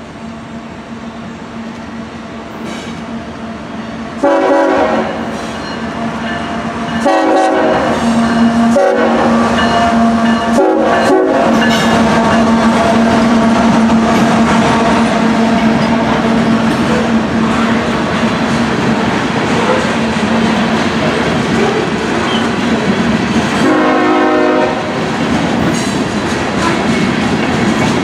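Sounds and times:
train engine: 0.0s - 28.0s
locomotive horn blasts: 4.2s - 6.1s, 7.0s - 16.6s, 23.6s - 25.0s
freight cars rumbling: 5.2s - 28.0s.

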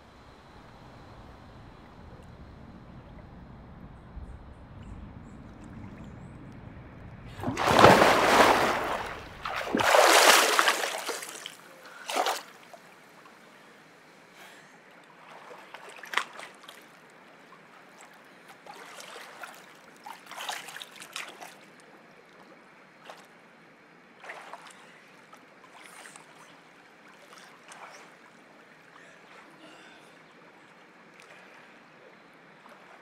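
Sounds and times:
small splashes and sloshing: 5.4s - 12.9s, 15.0s - 23.4s, 24.2s - 33.0s
heavy splashing in pool: 7.3s - 12.6s.

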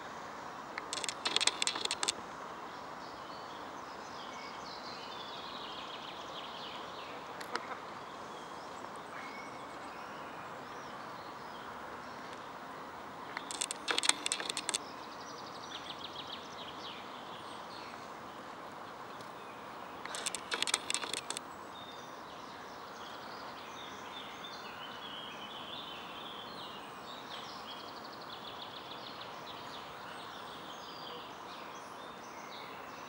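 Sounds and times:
birds harsh chattering: 0.8s - 2.1s, 13.4s - 14.8s, 20.1s - 21.4s
distant hum: 0.8s - 2.1s, 13.4s - 14.8s
faint bird chirping: 0.8s - 12.6s, 13.2s - 33.0s.

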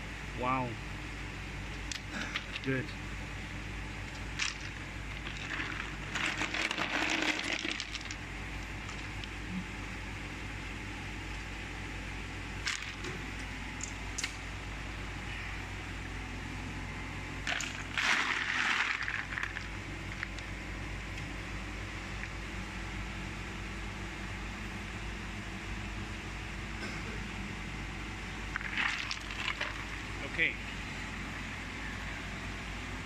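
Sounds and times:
machinery hum: 0.0s - 33.0s
ice clattering and clinking: 4.4s - 8.2s, 17.5s - 19.7s, 28.6s - 29.9s.

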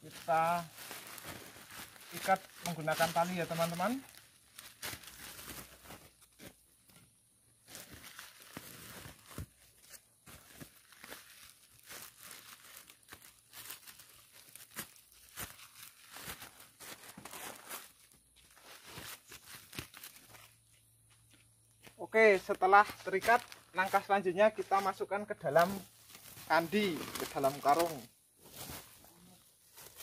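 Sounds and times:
plastic bag crinkling: 10.4s - 17.7s, 25.7s - 28.1s.

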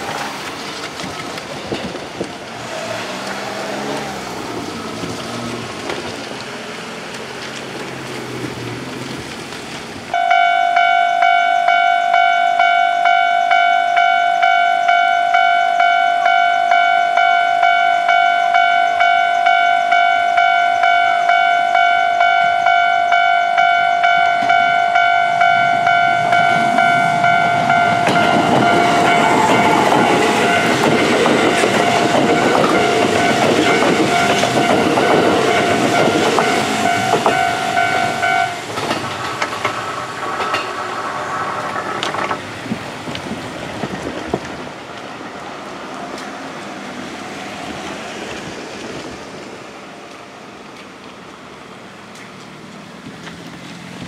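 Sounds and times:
electric train wheel clatter: 0.0s - 54.0s
level-crossing alarm ringing: 10.2s - 39.0s.

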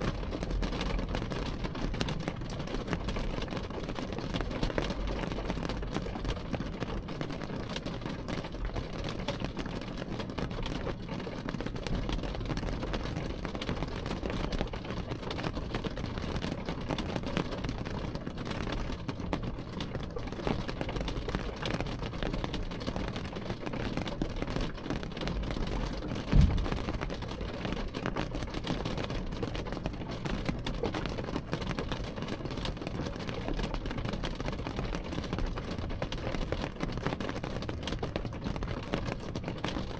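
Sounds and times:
rain on a car: 0.0s - 39.9s
dull thump: 26.3s - 27.0s.

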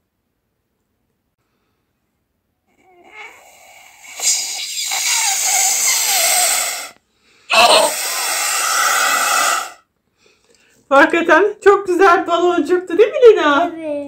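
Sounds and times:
air blown through straw hissing: 3.0s - 9.9s.

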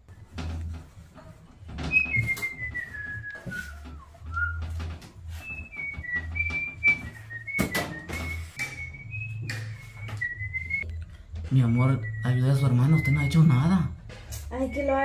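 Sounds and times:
person whistling a tune: 1.9s - 11.0s, 11.6s - 13.8s.

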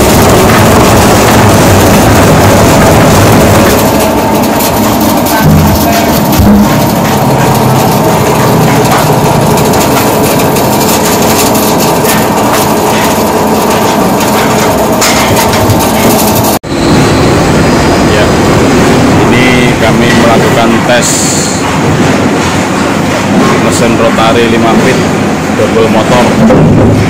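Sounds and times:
veneer lathe running: 0.0s - 16.6s
heavy low pulses: 0.0s - 20.9s.

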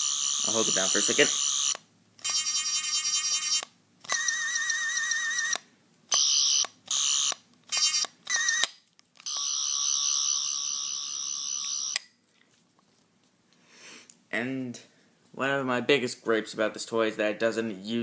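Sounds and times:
toy electronic sound effects: 0.0s - 12.0s.

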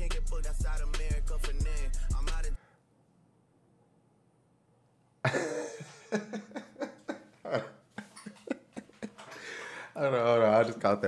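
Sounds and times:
man laughing hard: 5.3s - 9.8s.

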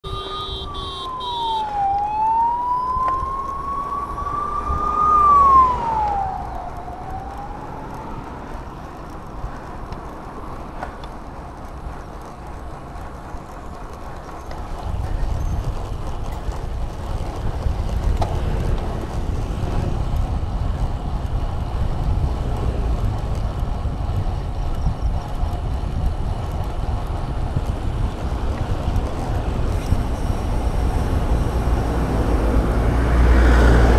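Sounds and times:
siren wailing: 0.0s - 8.9s
bike tyres on paved road: 0.0s - 33.9s
wind on microphone: 0.1s - 9.9s, 14.6s - 33.9s.

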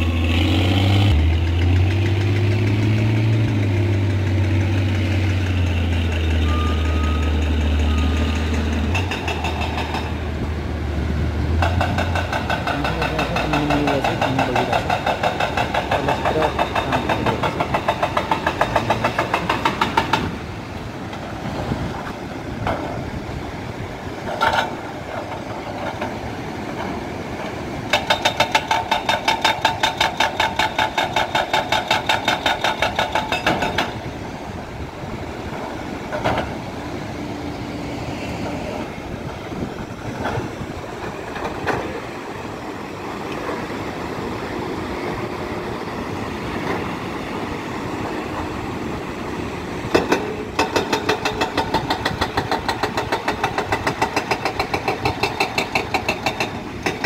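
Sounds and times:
diesel engine running: 0.0s - 20.8s
hydraulic rock breaker hammering: 11.6s - 20.3s, 27.9s - 34.0s, 49.9s - 57.0s.

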